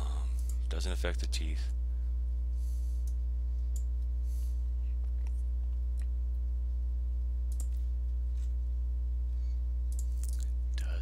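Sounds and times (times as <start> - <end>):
low electrical hum: 0.0 - 11.0
computer mouse clicks: 7.5 - 7.8, 9.9 - 10.4.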